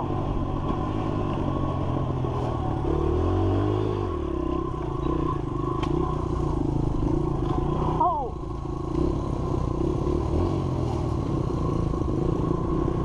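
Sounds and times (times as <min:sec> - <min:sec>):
dirt bike engine revving: 0:00.0 - 0:13.0.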